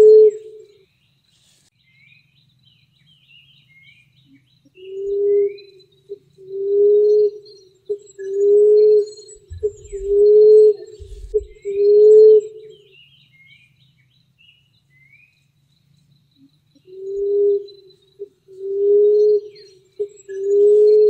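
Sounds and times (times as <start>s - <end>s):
small birds chirping: 7.2s - 11.9s
dove cooing: 8.4s - 12.0s, 18.6s - 21.0s.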